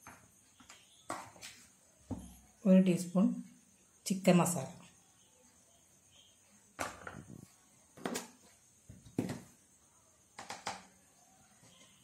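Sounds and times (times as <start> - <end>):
kitchen items knocking and clinking: 6.8 - 9.6.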